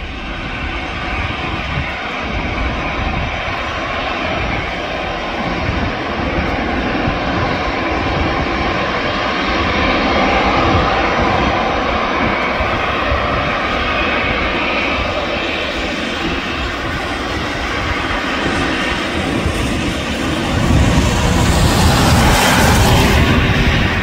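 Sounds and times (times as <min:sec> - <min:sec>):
airliner engines rushing: 0:00.0 - 0:24.0.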